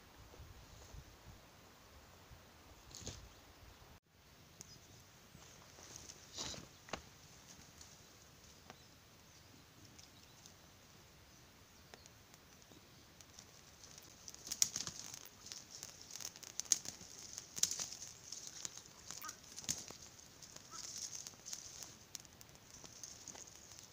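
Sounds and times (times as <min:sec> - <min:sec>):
campfire crackling and popping: 0:05.6 - 0:23.9.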